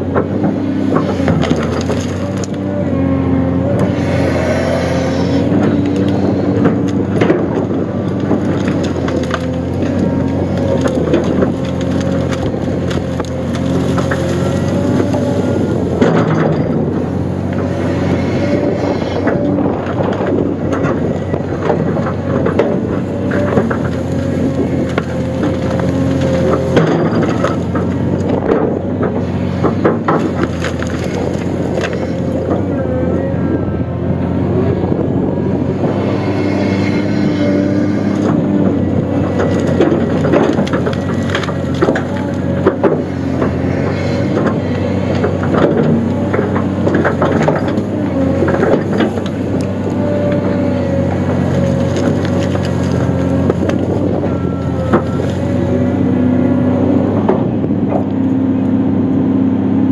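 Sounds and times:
excavator diesel engine: 0.0s - 59.9s
timber cracking and snapping: 0.1s - 2.7s, 5.6s - 16.8s, 18.5s - 32.7s, 36.9s - 55.5s.

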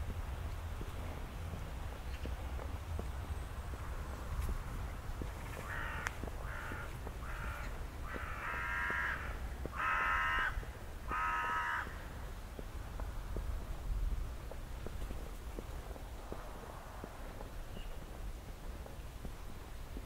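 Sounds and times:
faint footsteps: 0.0s - 9.8s, 12.2s - 20.0s
crow cawing: 5.6s - 12.1s.

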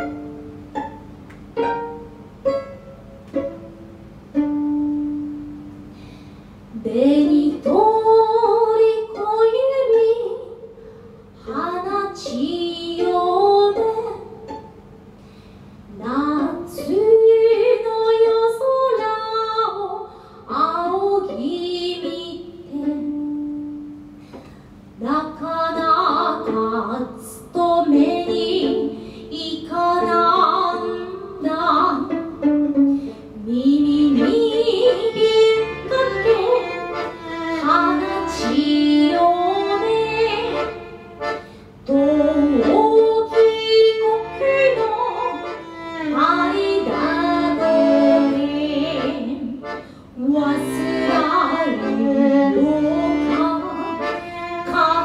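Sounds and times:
violin: 0.0s - 5.7s, 6.7s - 10.6s, 11.4s - 55.0s
woman singing: 6.7s - 10.6s, 11.4s - 14.4s, 15.9s - 23.6s, 25.0s - 32.3s, 33.4s - 40.8s, 41.9s - 55.0s
accordion: 25.2s - 55.0s
accordion bass notes pulsing: 33.7s - 55.0s.

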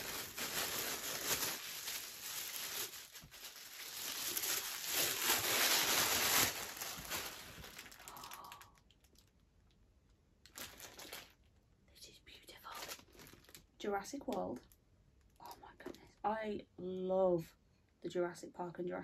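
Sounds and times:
plastic bag crinkling: 0.0s - 9.4s, 10.4s - 11.6s, 12.6s - 15.7s.

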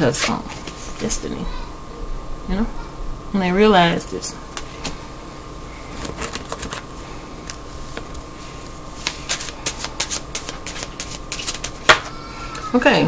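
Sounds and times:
cards shuffled by hand: 6.0s - 6.9s, 9.0s - 12.1s.

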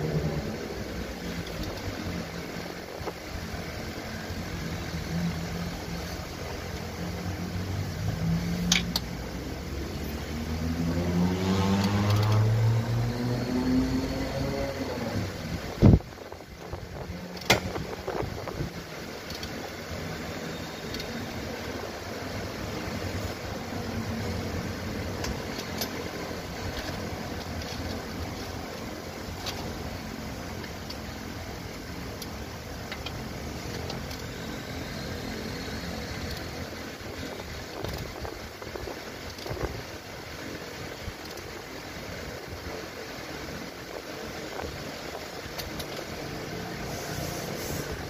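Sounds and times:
car engine idling: 14.8s - 48.0s.

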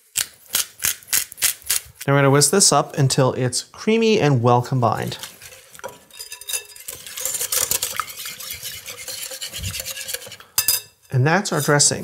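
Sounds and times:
whisk scraping a glass bowl: 5.0s - 12.0s.

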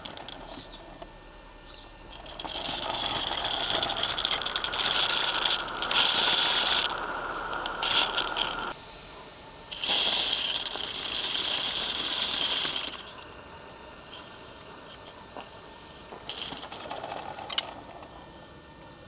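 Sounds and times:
mechanical rattling: 0.0s - 1.1s, 2.1s - 8.8s, 9.7s - 13.2s, 16.1s - 18.2s
steam hissing: 2.2s - 13.2s.

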